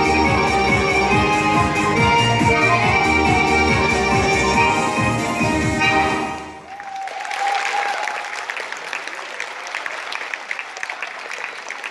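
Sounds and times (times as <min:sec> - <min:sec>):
accordion music: 0:00.0 - 0:06.6
audience applauding: 0:06.6 - 0:11.9.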